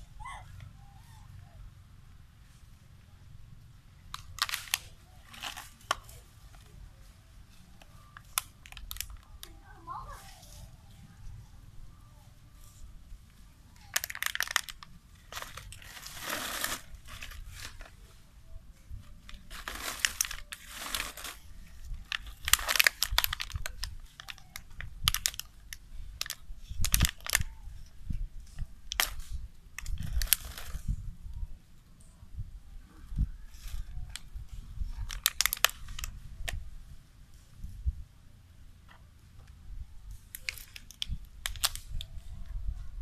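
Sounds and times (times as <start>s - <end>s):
plastic bottle crinkling: 4.1s - 6.2s, 8.2s - 9.5s, 13.8s - 18.0s, 19.2s - 27.5s, 40.3s - 42.0s.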